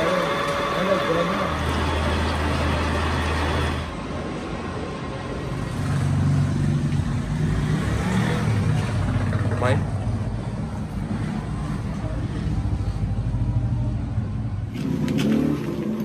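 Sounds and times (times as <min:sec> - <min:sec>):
machinery humming: 0:00.0 - 0:04.1
broad machine noise: 0:00.0 - 0:07.7.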